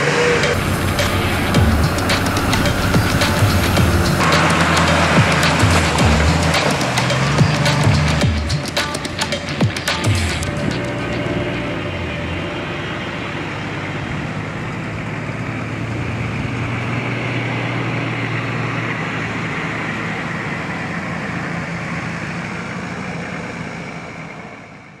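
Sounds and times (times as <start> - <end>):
broad rushing noise: 0.0 - 24.2
vehicle engine humming: 0.0 - 25.0.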